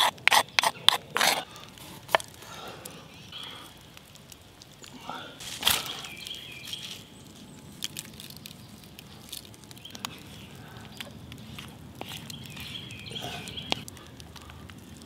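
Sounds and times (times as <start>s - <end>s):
bird chirping: 5.8s - 7.7s, 9.8s - 13.8s.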